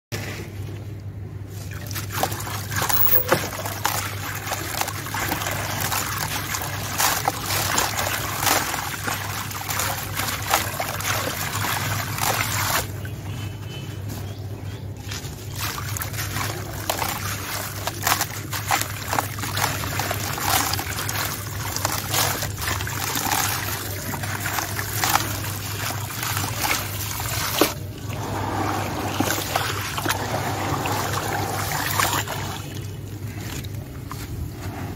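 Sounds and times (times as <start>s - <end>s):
cement crumbled by hand in water: 1.8s - 13.1s, 15.2s - 28.0s
cement crackling in water: 1.8s - 13.2s, 15.2s - 34.8s.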